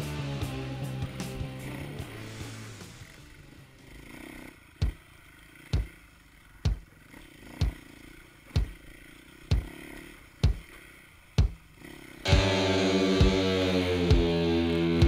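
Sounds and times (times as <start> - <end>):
bass drum thumps with booms: 6.7 - 6.9, 8.6 - 8.8, 10.4 - 10.7, 11.4 - 11.6.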